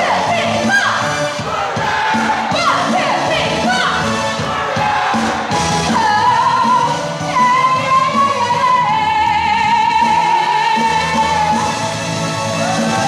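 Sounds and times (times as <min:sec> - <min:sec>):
backing music with steady beat: 0:00.0 - 0:13.0
person singing with vibrato: 0:05.8 - 0:11.9.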